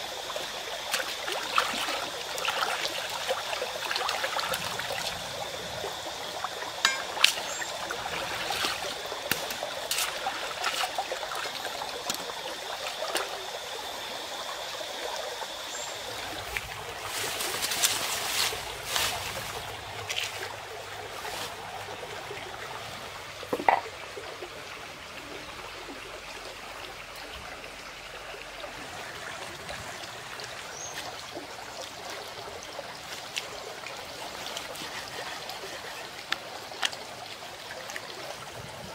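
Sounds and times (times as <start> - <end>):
stream trickling over stones: 0.0 - 38.9
leaves rustling: 16.1 - 22.6.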